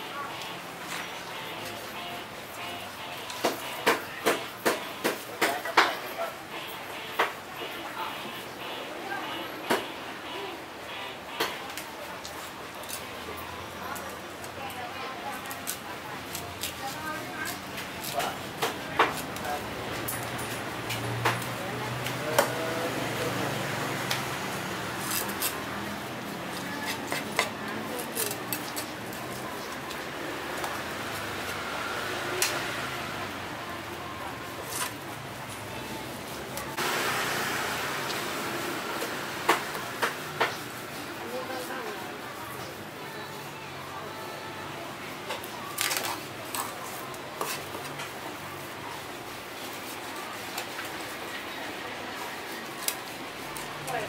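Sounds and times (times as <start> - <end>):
steady background noise: 0.0 - 54.0.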